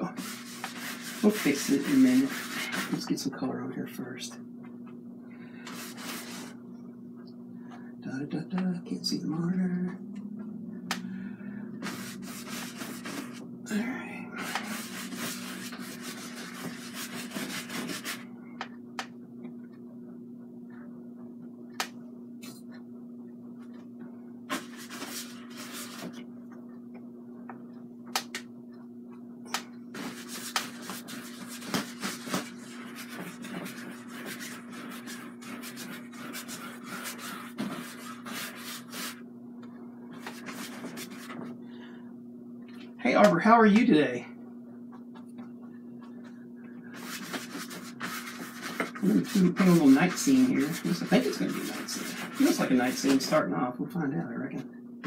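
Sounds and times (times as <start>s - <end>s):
paintbrush scrubbing canvas: 0.0s - 3.1s, 5.7s - 6.6s, 11.8s - 13.4s, 14.4s - 18.2s, 24.5s - 26.2s, 30.0s - 39.2s, 40.2s - 41.5s, 46.9s - 53.4s
steady low hum: 0.0s - 55.0s.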